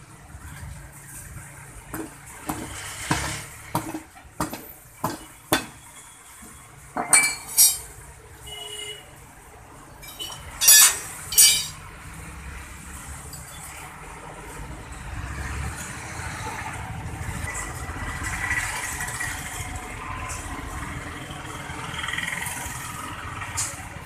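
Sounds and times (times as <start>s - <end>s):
hammer striking steel wheel: 1.9s - 5.9s, 10.2s - 11.8s
steel tools clanking: 1.9s - 8.0s, 10.0s - 11.8s.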